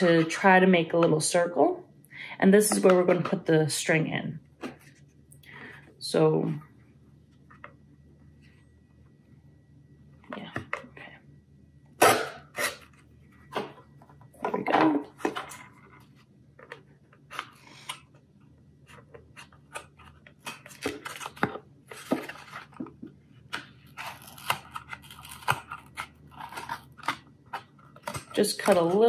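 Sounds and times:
carton crinkling: 18.8 - 29.0
scissors snipping carton: 24.0 - 27.2, 28.0 - 29.0.

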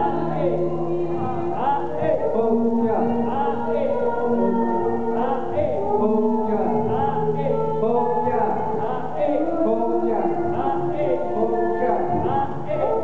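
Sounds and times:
dance music: 0.0 - 13.0
person singing long held notes: 0.0 - 13.0.

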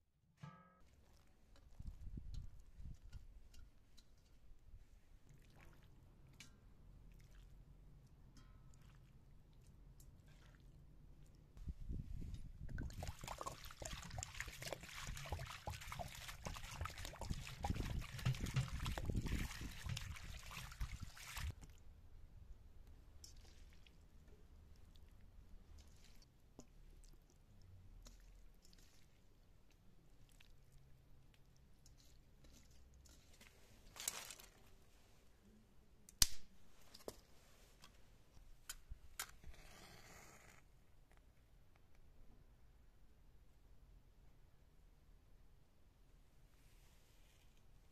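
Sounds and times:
hand squishing wet meat: 0.9 - 11.6, 12.6 - 22.0, 22.8 - 34.9
water trickling through colander: 0.9 - 21.8
water pouring and splashing: 5.2 - 8.1, 8.7 - 11.4, 12.2 - 21.8, 23.2 - 30.9, 31.7 - 34.6
twigs snapping: 34.0 - 34.6, 36.1 - 36.5.

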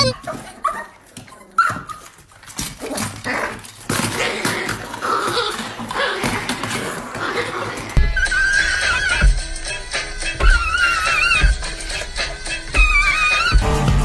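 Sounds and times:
small dog vocalising: 0.0 - 2.0, 10.4 - 11.6.

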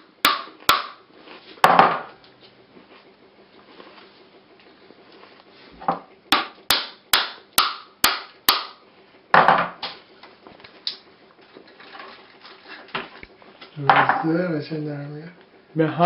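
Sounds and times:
hammer tapping coconut shell: 0.2 - 1.0, 6.3 - 8.8.

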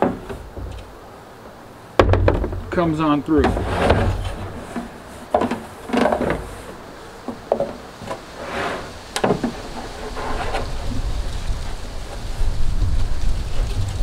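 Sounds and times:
hollow knocks on plastic drum: 2.0 - 2.8.

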